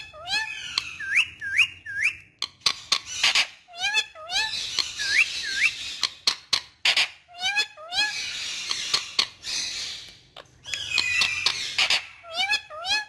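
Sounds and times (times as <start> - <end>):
parrot whistling: 0.0 - 6.2.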